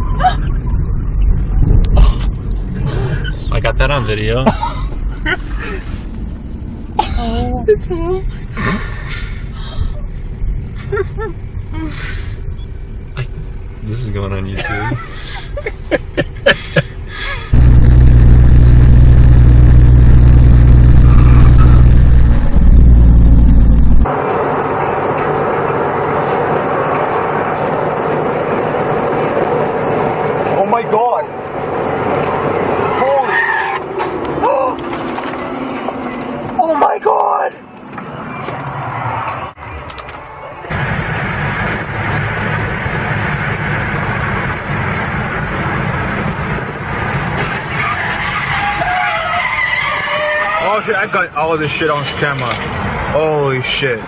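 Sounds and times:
wind noise: 0.0 - 3.5
car engine and road noise: 0.0 - 54.0.

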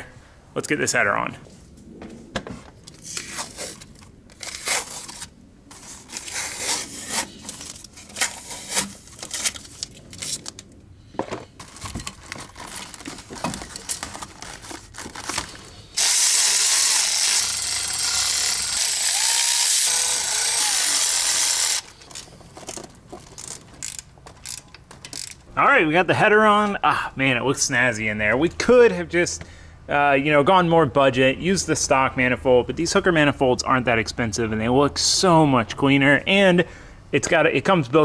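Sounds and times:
power tool running: 16.0 - 22.0.

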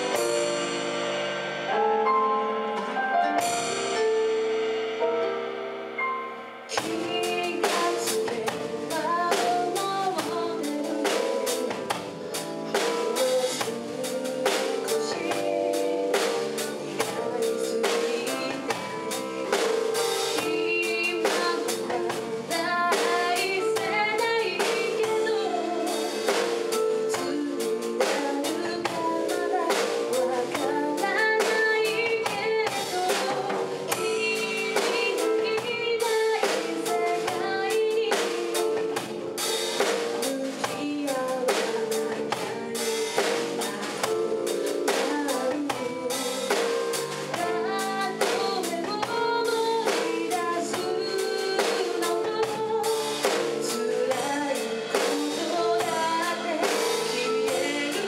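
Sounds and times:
drum kit steady beat: 0.0 - 58.0
woman singing: 6.7 - 58.0.

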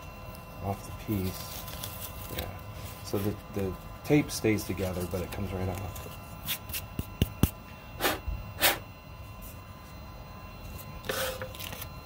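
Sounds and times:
brushing rustles: 1.0 - 3.7.

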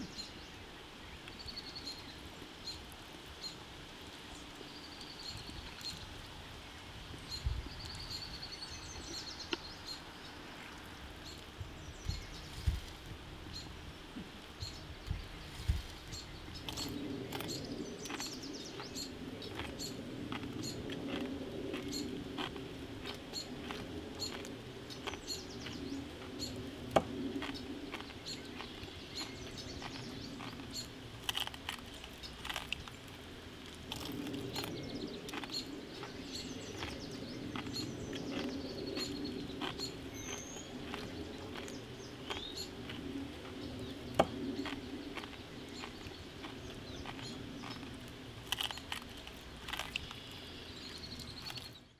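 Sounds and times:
steady low background noise: 0.0 - 51.9
birds chirping: 4.3 - 51.9
sharp crackles and clicks: 15.0 - 51.9.

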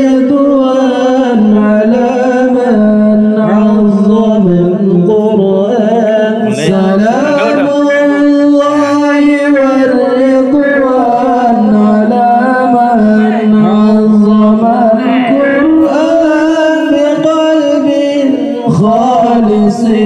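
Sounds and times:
man singing through loudspeaker: 0.0 - 20.0.

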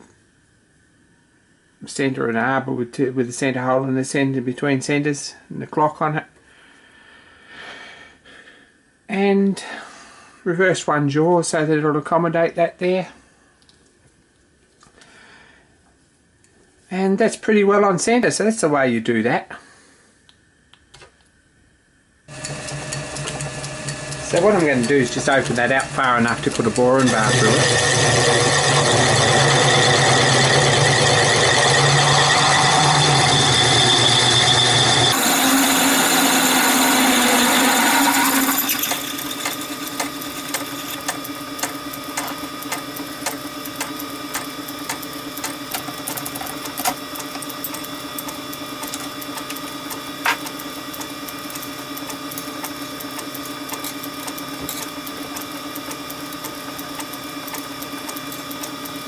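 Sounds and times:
drill cutting into steel: 22.3 - 59.0
lathe humming: 22.3 - 59.0.

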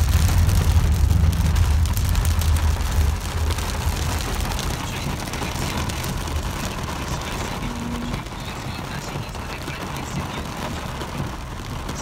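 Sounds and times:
deep rumble: 0.0 - 8.8
heavy rain on car: 0.0 - 12.0.

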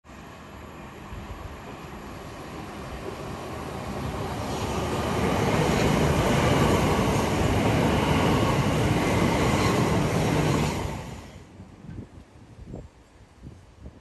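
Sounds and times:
train wheels rumbling on rail: 1.1 - 12.4.

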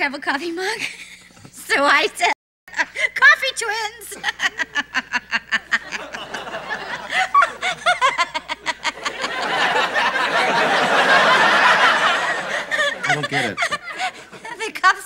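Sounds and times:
woman laughing: 4.0 - 9.5, 12.3 - 14.8
crowd laughing: 4.1 - 14.8.

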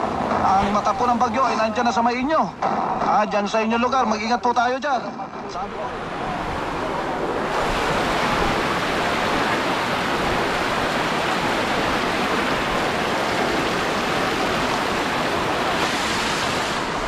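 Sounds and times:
floodwater rushing: 5.6 - 17.0
rain falling: 6.9 - 17.0.

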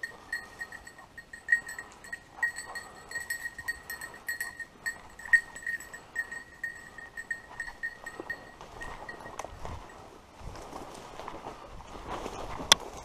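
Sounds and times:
dog collar bell ringing: 0.0 - 10.1
rustle of dry bracken: 6.2 - 13.0.

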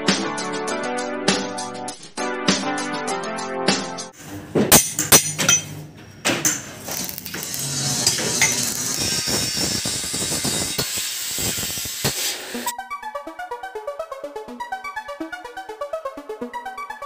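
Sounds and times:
metal bar clanking: 4.6 - 6.8, 8.0 - 8.8
metal scraping hiss: 7.3 - 12.7.

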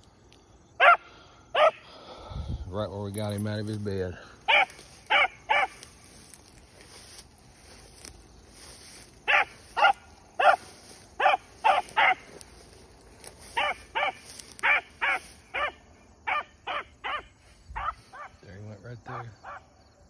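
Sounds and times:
hound barking: 0.8 - 1.8, 4.5 - 5.9, 9.2 - 12.4, 13.5 - 18.4, 19.2 - 19.7.

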